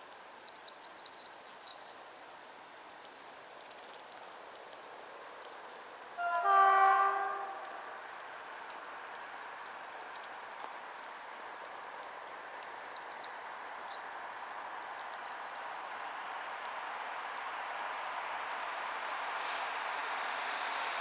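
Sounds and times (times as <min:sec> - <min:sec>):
distant train on rails: 0:03.7 - 0:21.0
bird chirping: 0:05.7 - 0:08.0.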